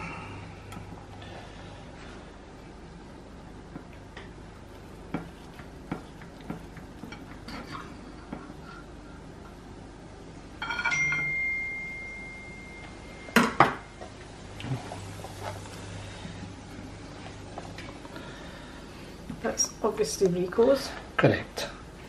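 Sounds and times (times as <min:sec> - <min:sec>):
plate ringing tone: 0:10.6 - 0:14.1.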